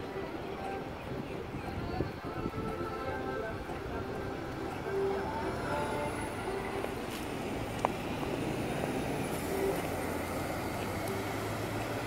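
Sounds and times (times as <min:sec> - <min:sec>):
street traffic: 0:00.0 - 0:12.0
bus driving past: 0:03.6 - 0:12.0.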